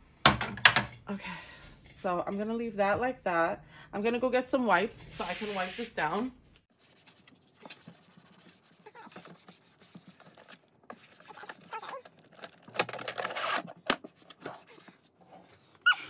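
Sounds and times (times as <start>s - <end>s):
wipe rubbing on drawer: 6.8s - 10.3s.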